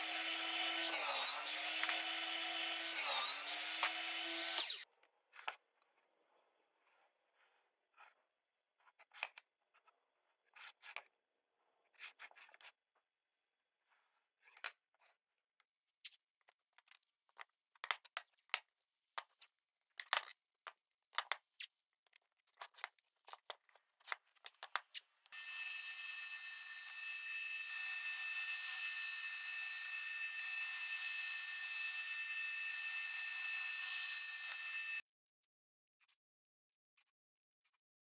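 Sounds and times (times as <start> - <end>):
drill press motor running: 0.0 - 4.8, 25.4 - 35.0.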